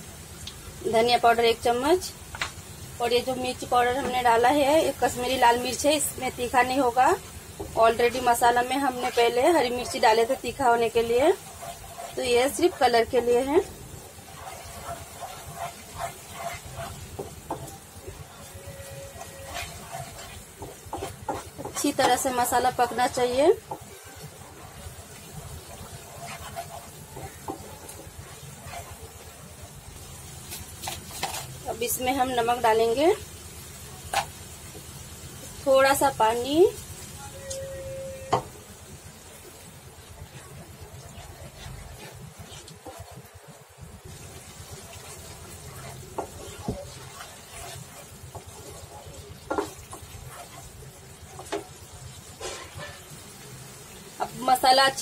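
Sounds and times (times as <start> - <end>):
paste sizzling in oil: 0.0 - 55.0
spatula scraping a pan: 6.6 - 29.4, 30.0 - 32.5, 40.2 - 43.3, 44.1 - 53.3
spatula knocking against pan: 20.6 - 22.2.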